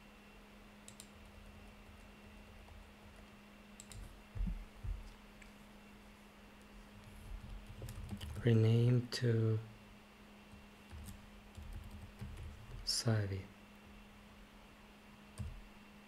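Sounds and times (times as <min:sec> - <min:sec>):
faint electrical hum: 0:00.0 - 0:16.0
computer keyboard keys clicking: 0:00.9 - 0:01.4, 0:03.8 - 0:04.1, 0:07.4 - 0:08.4, 0:10.9 - 0:12.9.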